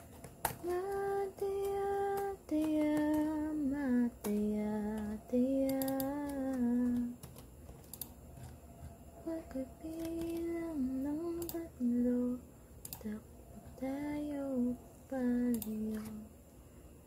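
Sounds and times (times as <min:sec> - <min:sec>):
laptop keys clicking: 0:00.0 - 0:03.5, 0:04.2 - 0:09.0, 0:09.9 - 0:10.6
woman singing unaccompanied: 0:00.5 - 0:07.4, 0:09.2 - 0:16.3.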